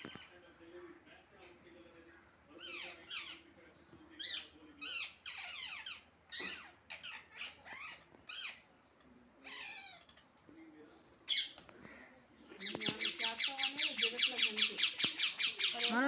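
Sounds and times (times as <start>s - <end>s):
parrot screeching: 4.2s - 8.6s, 9.4s - 10.2s.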